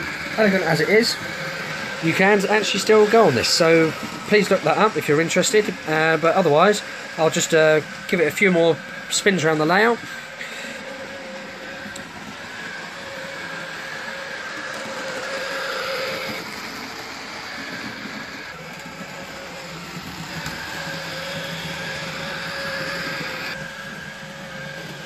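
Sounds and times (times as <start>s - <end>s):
model train motor humming: 0.0s - 25.0s
wheels rattling on track: 0.0s - 25.0s.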